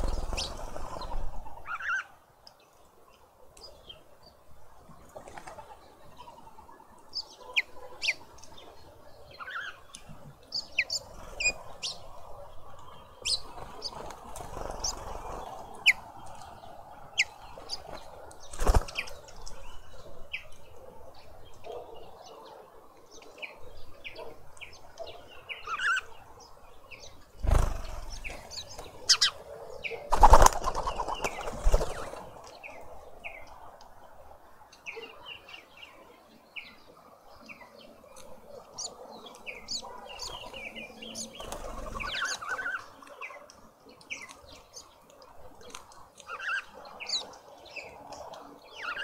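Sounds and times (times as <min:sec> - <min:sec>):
small birds chirping: 0:00.0 - 0:49.0
wings flapping: 0:13.5 - 0:15.4, 0:17.9 - 0:19.2, 0:27.4 - 0:29.3, 0:30.1 - 0:32.3, 0:41.4 - 0:42.4.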